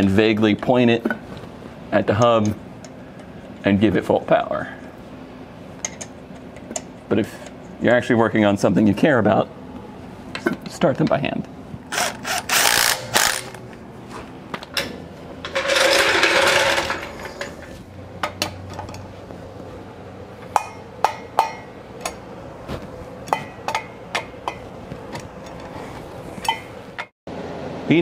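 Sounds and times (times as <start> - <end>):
torque wrench clicking: 11.9 - 13.6
power driver spinning lug nuts: 11.9 - 13.8, 15.4 - 19.1.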